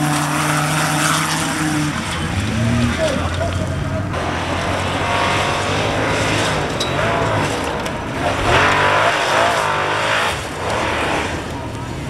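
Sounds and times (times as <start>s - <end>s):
buggy engine revving hard: 0.0s - 11.8s.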